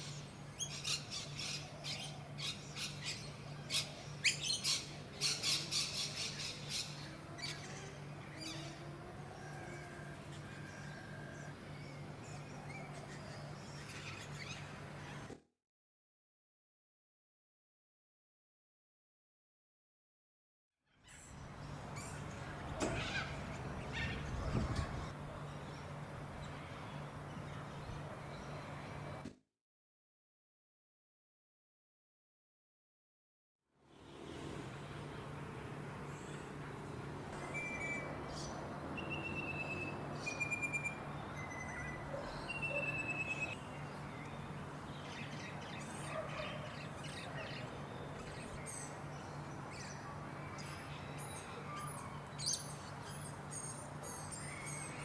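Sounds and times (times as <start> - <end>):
birds squawking: 22.6 - 25.1.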